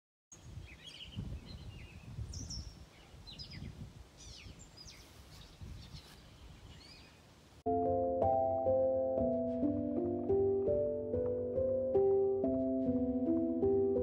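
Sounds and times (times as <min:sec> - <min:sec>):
small birds chirping: 0:00.3 - 0:07.3
wind gusts on microphone: 0:00.4 - 0:07.2.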